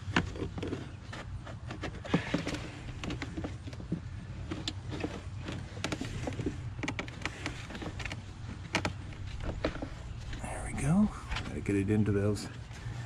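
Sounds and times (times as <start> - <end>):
low hum: 2.6 - 13.0.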